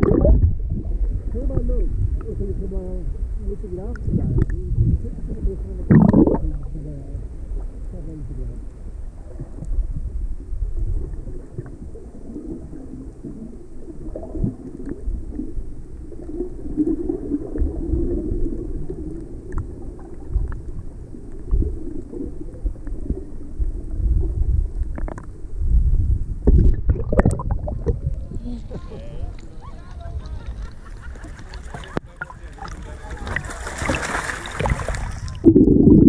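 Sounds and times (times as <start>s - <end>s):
water splashing: 0.0s - 2.4s, 5.4s - 8.4s, 26.5s - 36.0s
muffled underwater rumble: 0.0s - 36.0s
water bubbling: 0.0s - 36.0s.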